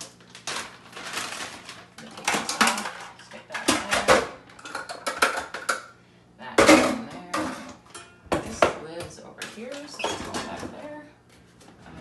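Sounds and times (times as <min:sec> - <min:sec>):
plastic bag rustling: 0:00.0 - 0:03.2.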